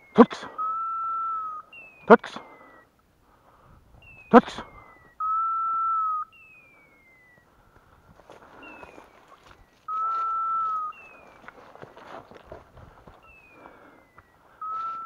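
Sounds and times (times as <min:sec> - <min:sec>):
loud high beep: 0:04.0 - 0:07.3, 0:09.9 - 0:11.3
footsteps through dry leaves: 0:08.1 - 0:13.3.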